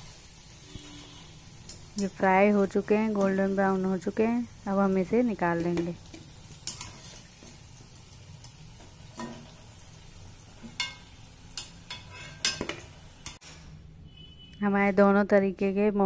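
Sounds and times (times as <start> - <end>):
food sizzling in oil: 0.0 - 13.4
spoon clinking against pan: 10.6 - 13.4.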